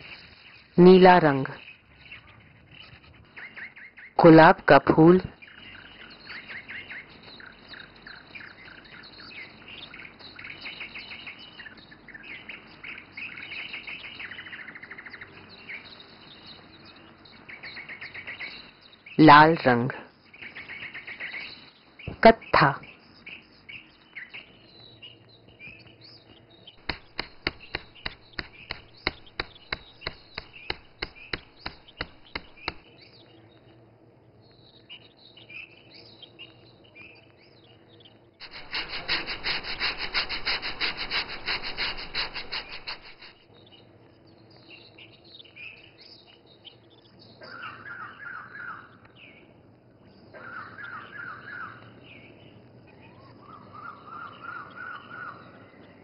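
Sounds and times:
birds chirping: 0.0 - 56.0
fast stone rubbing strokes: 26.8 - 32.8, 38.4 - 43.4
stone-on-stone knocks: 26.8 - 32.8.

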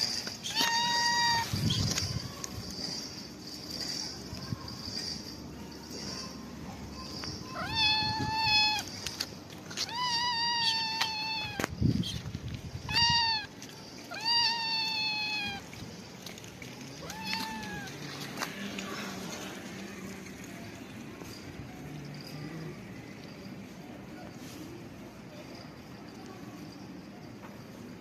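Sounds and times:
cat meowing: 0.0 - 2.3, 7.5 - 9.1, 9.7 - 11.7, 12.8 - 13.5, 14.1 - 15.7, 16.9 - 18.0.

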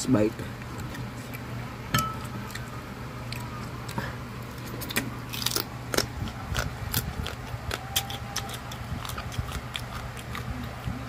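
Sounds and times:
close-up chewing and crunching: 0.6 - 1.6, 2.2 - 11.0.

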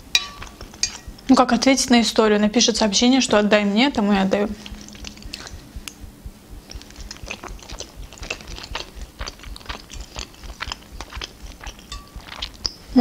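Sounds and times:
chewing with clicks and smacks: 0.2 - 1.3, 4.5 - 13.0.

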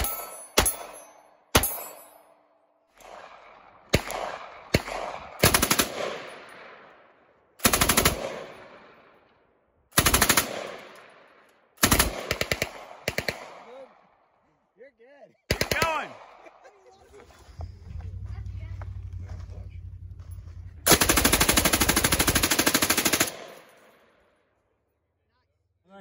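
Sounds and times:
gunshots: 0.0 - 2.0, 3.0 - 7.0, 7.6 - 9.2, 9.9 - 13.9, 15.5 - 16.6, 20.8 - 24.2
machine gun bursts with echo: 3.9 - 6.4, 7.6 - 8.7, 10.0 - 10.9, 11.8 - 13.4, 20.9 - 23.7.

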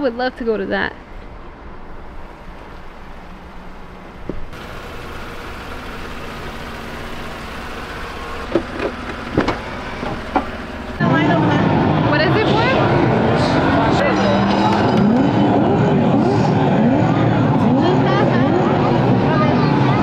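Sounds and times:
vehicle engine hum: 0.0 - 20.0
sharp clicks and knocks: 8.5 - 10.6.

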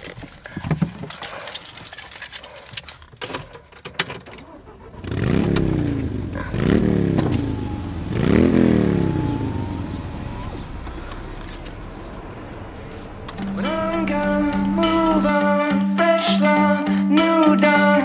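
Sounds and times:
light clicks and rattles: 0.0 - 4.6
car engine revving: 4.5 - 15.8.

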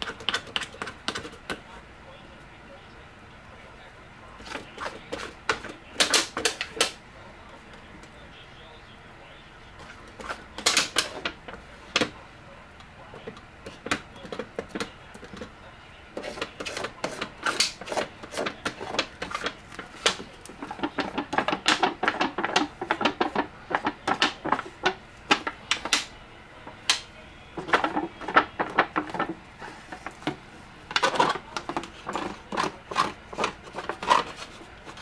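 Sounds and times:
mixing stick scraping a metal tin: 16.2 - 26.0, 30.9 - 35.0.

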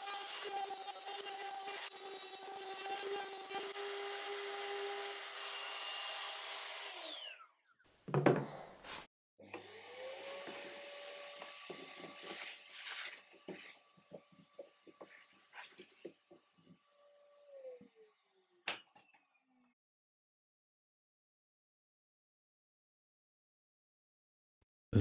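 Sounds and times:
trim router cutting wood: 0.0 - 7.5, 9.4 - 18.6
shop vacuum running: 9.4 - 12.5.

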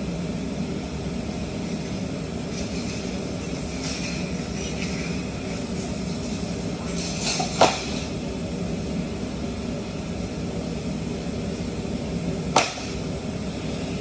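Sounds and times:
workshop machinery humming: 0.0 - 14.0
sharp knocks: 12.5 - 13.0.

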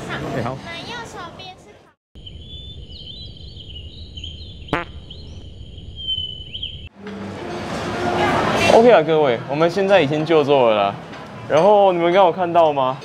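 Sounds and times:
bird-like chirps: 2.2 - 6.9
low rumble: 2.2 - 6.9.

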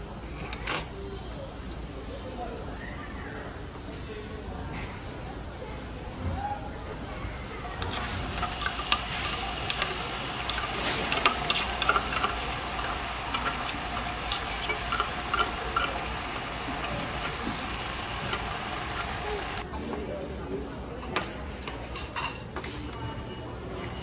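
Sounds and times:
food sizzling in a pan: 7.4 - 19.6.

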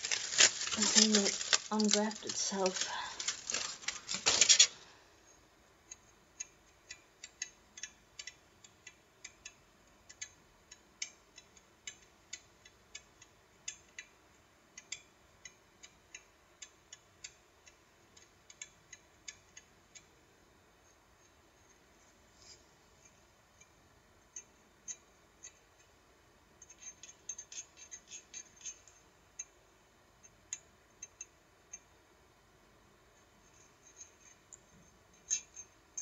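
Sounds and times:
aluminium foil crinkling: 0.0 - 5.0.

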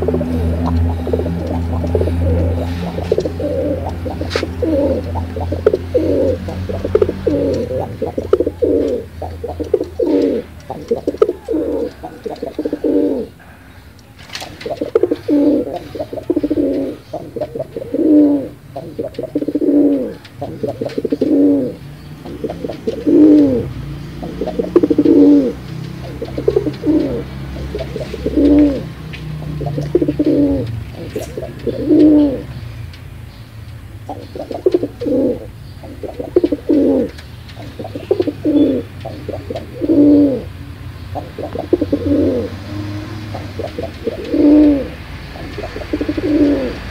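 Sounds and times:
pigeons cooing: 0.0 - 46.9.

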